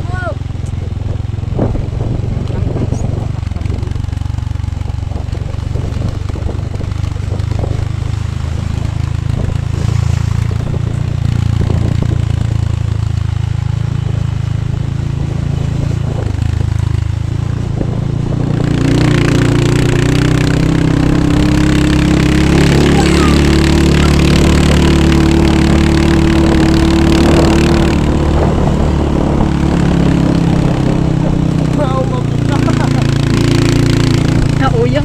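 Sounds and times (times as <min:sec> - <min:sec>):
motorcycle engine running: 0:00.0 - 0:35.0.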